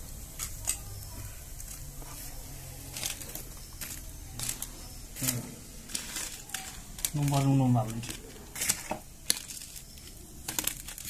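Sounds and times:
paper crinkling: 0:02.0 - 0:11.0.

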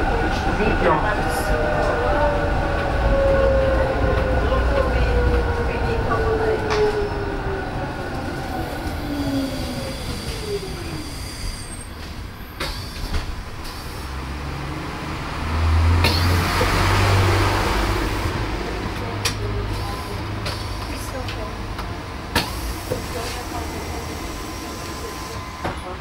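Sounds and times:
tram low rumble: 0:00.0 - 0:26.0
tram motor whine: 0:00.0 - 0:26.0
sharp clicks from rails: 0:12.0 - 0:13.8.

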